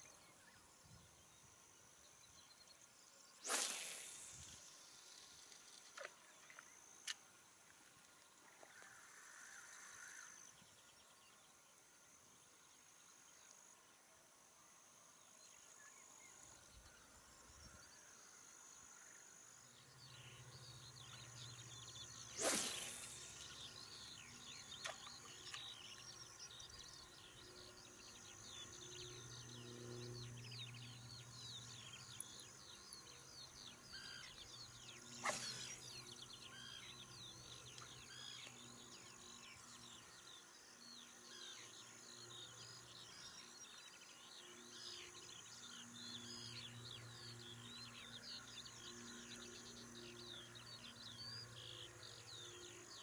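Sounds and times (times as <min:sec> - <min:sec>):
faint steady high buzz: 0:00.0 - 0:53.0
insects trilling: 0:02.0 - 0:11.6, 0:15.3 - 0:53.0
fishing rod cast swish: 0:03.4 - 0:04.6, 0:22.3 - 0:23.6, 0:35.2 - 0:35.8
small birds chirping: 0:19.8 - 0:53.0.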